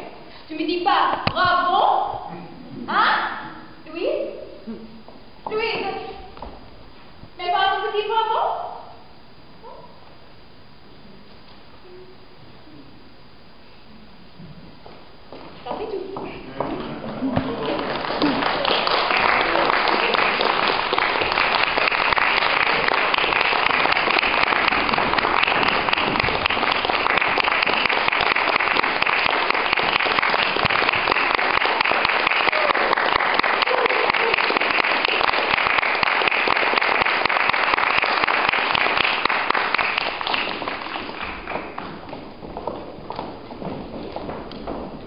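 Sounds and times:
audience applauding: 0:16.6 - 0:45.0.

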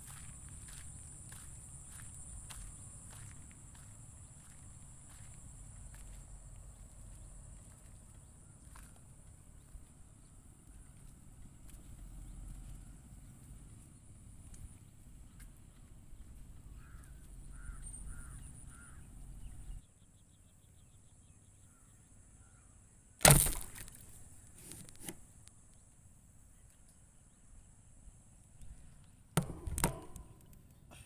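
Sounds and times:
bird calling: 0:15.4 - 0:19.8
crossbow firing crack: 0:23.2 - 0:24.1.

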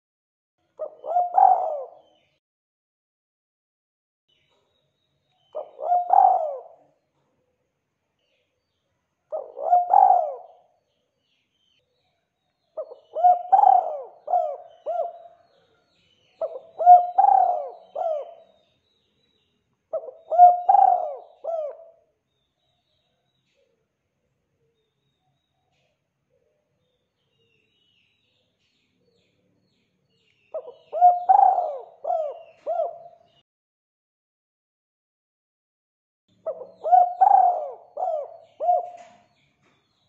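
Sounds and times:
dove cooing: 0:00.8 - 0:02.2, 0:05.6 - 0:06.9, 0:09.3 - 0:10.7, 0:12.8 - 0:15.5, 0:16.4 - 0:18.6, 0:19.9 - 0:22.0, 0:30.6 - 0:33.3, 0:36.4 - 0:39.3.

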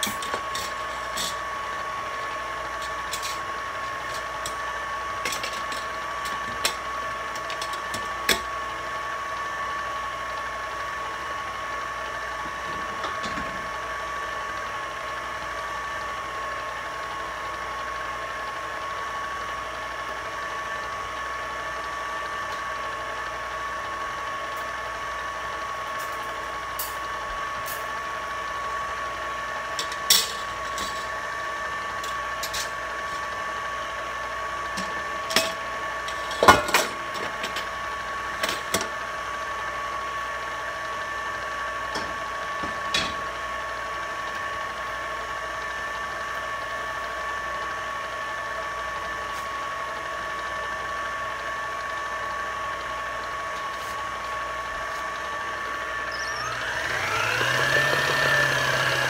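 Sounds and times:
electric mixer whining: 0:00.0 - 0:59.0.

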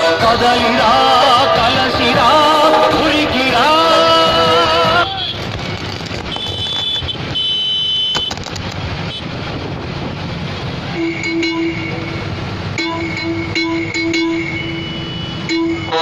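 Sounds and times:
tractor engines running: 0:00.0 - 0:16.0
vehicle horns honking: 0:01.4 - 0:08.4, 0:09.0 - 0:09.3, 0:10.9 - 0:16.0.

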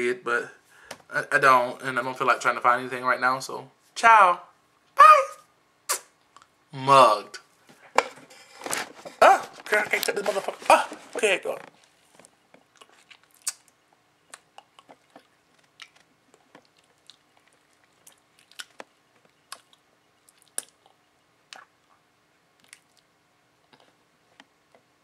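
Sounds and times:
faint steady hum: 0:00.0 - 0:25.0
small clicks and smacks: 0:11.6 - 0:21.0.

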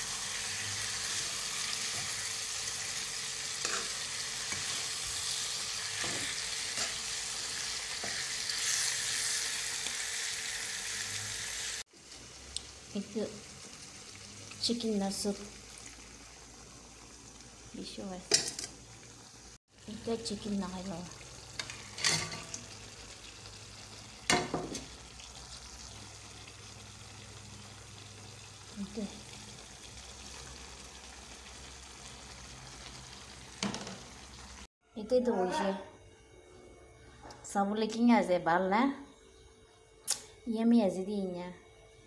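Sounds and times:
food sizzling in oil: 0:00.0 - 0:34.7
metal spatula scraping a pan: 0:03.5 - 0:09.5, 0:21.6 - 0:22.6.

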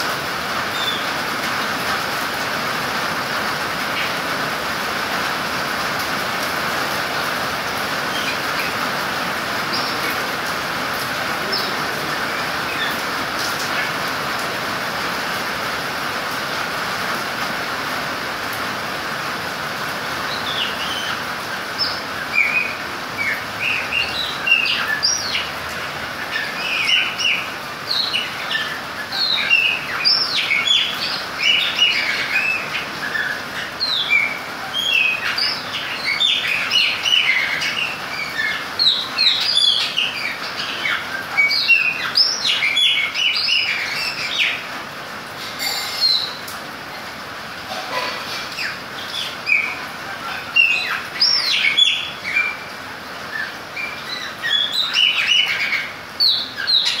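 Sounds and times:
rain hissing: 0:00.0 - 0:57.0
blackbird singing: 0:00.7 - 0:01.1, 0:11.3 - 0:13.0, 0:21.8 - 0:25.5, 0:26.2 - 0:44.6, 0:45.6 - 0:46.4, 0:48.5 - 0:52.7, 0:53.3 - 0:57.0.

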